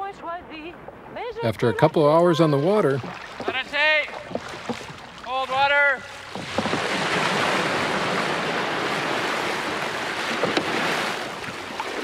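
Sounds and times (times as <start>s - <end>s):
water rushing and splashing: 0.0s - 12.0s
light knocks: 6.3s - 6.9s, 10.3s - 10.8s.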